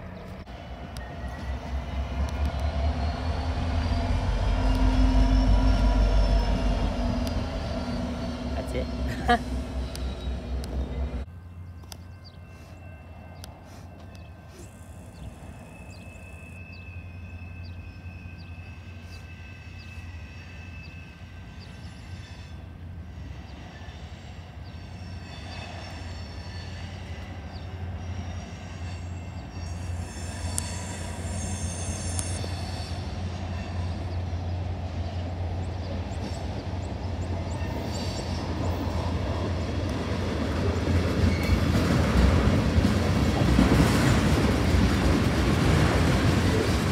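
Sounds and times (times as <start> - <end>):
freight train rumbling: 0.0 - 46.9
wheel squeals: 41.2 - 41.8.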